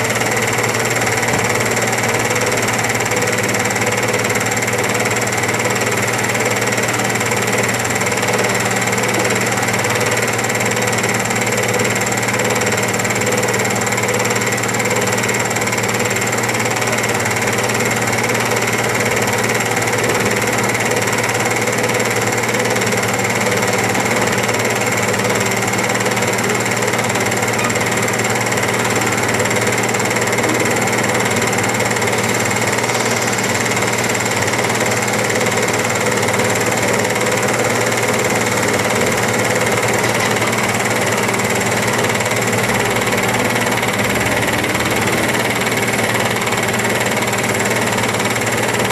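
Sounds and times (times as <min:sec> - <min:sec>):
excavator diesel engines droning: 0:00.0 - 0:48.9.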